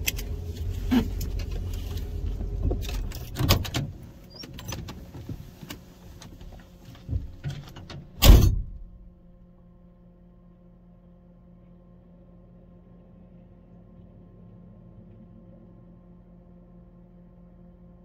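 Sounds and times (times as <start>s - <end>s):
low vehicle rumble: 0.0s - 10.1s
loud thump: 8.2s - 9.2s.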